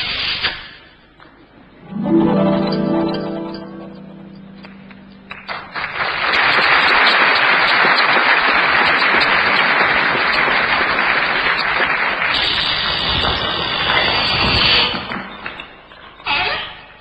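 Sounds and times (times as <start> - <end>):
audience applauding: 2.0 - 15.3.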